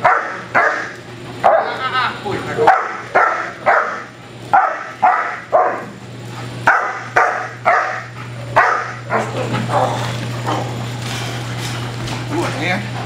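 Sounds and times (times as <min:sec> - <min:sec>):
dog barking sharply: 0:00.0 - 0:01.7, 0:02.6 - 0:05.9, 0:06.6 - 0:10.0.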